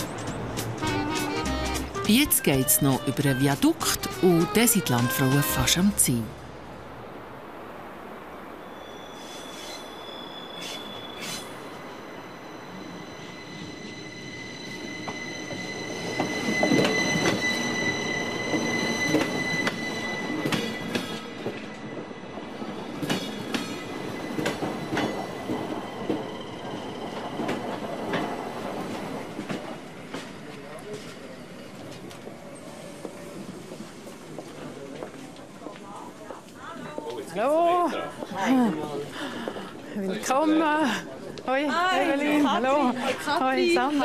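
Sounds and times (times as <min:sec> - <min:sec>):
train wheels squealing: 0:08.6 - 0:28.5.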